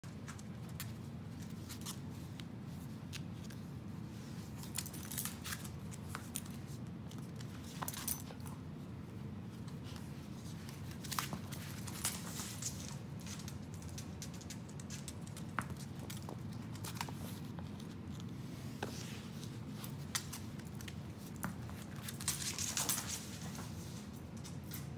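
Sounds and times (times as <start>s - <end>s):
low room hum: 0.0s - 24.9s
dog claws clicking on hard floor: 4.6s - 8.6s, 9.6s - 24.9s.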